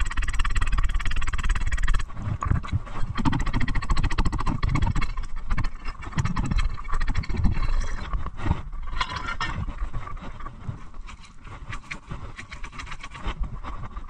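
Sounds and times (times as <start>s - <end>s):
metal bar scraping ice: 8.9s - 9.6s.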